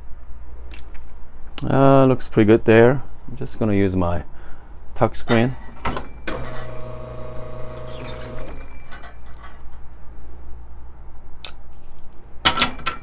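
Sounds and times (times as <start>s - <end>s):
espresso machine pump humming: 6.3s - 8.6s.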